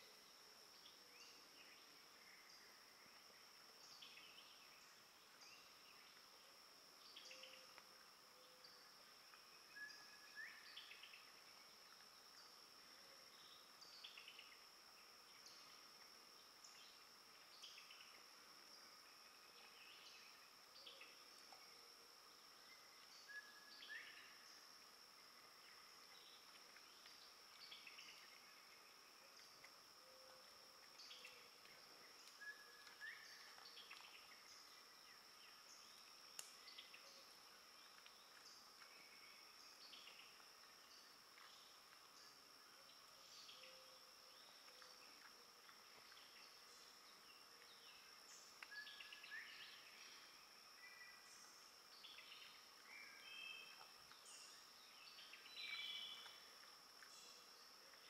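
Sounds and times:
insect drone: 0:00.0 - 0:58.0.

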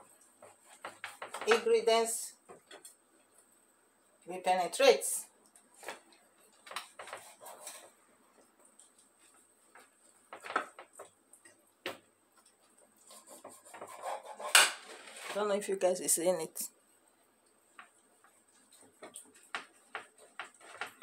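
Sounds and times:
knife scraping on ceramic plate: 0:07.0 - 0:07.9, 0:13.1 - 0:15.3.

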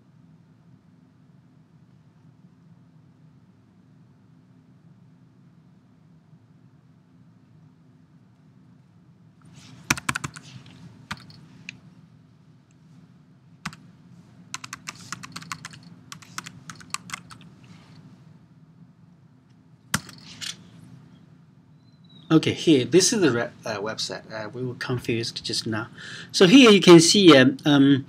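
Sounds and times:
faint low hum: 0:00.0 - 0:28.0
typing on keyboard: 0:09.9 - 0:10.5, 0:11.1 - 0:11.4, 0:13.6 - 0:13.8, 0:14.5 - 0:17.5, 0:19.9 - 0:20.2.

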